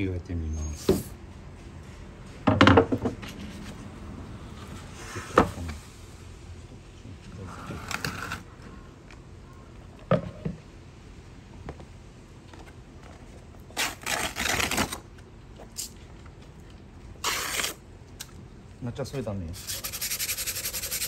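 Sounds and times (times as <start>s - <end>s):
short scrape: 7.4s - 8.5s, 17.2s - 17.8s
sandpaper rustling: 17.2s - 17.8s, 19.5s - 21.0s.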